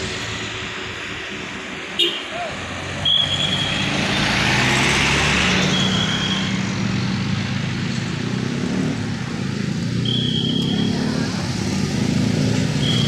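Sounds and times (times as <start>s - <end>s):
high whistle-like tone: 3.0s - 3.9s, 5.6s - 6.6s, 10.0s - 11.0s, 12.8s - 13.0s.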